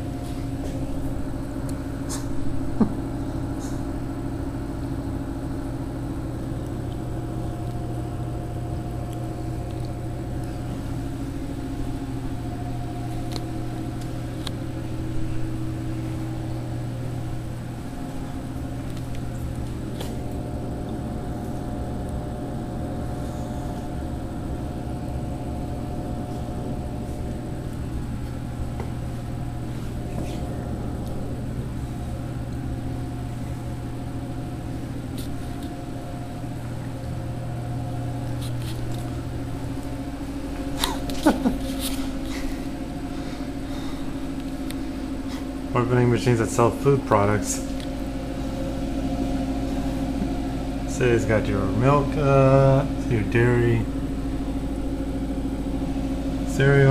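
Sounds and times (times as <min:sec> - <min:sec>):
vending machines humming: 0:00.0 - 0:56.9.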